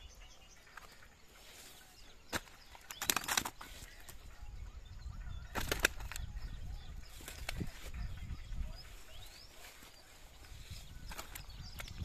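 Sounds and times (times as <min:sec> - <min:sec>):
sharp clattering or flapping: 0:02.4 - 0:03.8, 0:05.5 - 0:06.3.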